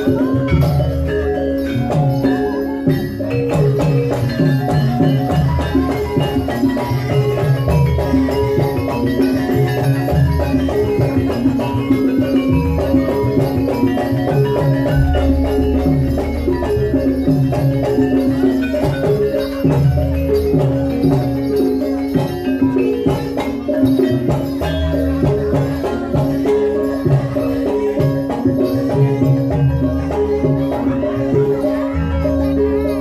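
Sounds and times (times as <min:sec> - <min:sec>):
metallophones and gongs ringing: 0:00.0 - 0:33.0
low hand drum strokes: 0:10.0 - 0:21.4.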